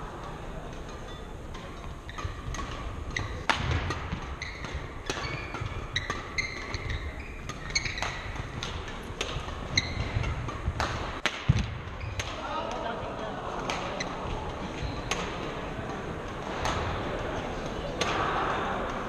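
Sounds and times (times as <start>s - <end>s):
racket striking shuttlecock: 0.7s - 12.9s, 13.6s - 19.0s
shoe squeaks: 4.4s - 8.3s, 9.7s - 10.4s, 12.0s - 12.2s.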